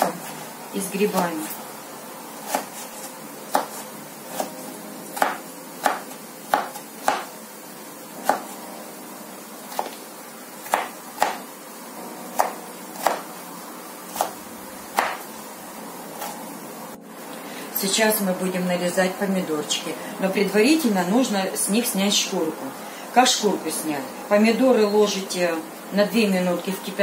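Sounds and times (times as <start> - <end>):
knife chopping on wooden board: 2.5 - 4.5, 5.2 - 7.3, 8.2 - 8.5, 10.6 - 11.4, 12.4 - 13.2, 15.0 - 15.2.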